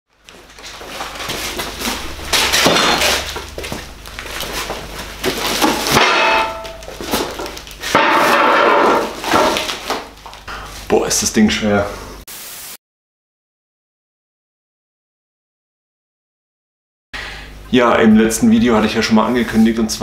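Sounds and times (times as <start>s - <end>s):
cardboard boxes knocking and thudding: 0.3s - 10.4s.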